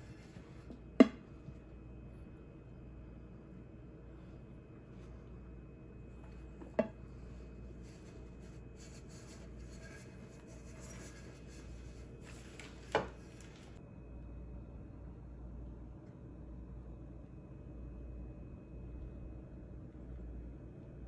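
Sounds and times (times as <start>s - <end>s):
faint rubbing: 7.0s - 13.8s.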